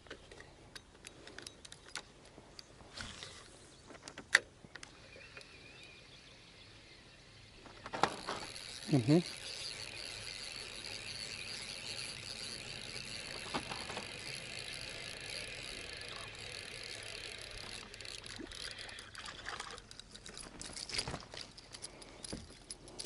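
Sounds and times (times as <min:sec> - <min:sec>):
light water noise: 0:04.8 - 0:21.6
insects buzzing: 0:05.0 - 0:19.5.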